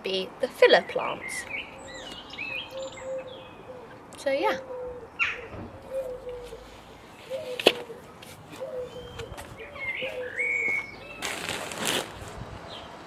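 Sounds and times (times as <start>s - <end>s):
bird chirping: 0.7s - 4.1s, 4.7s - 11.5s
pigeon cooing: 2.7s - 10.8s
plastic bag rustling: 11.2s - 12.4s.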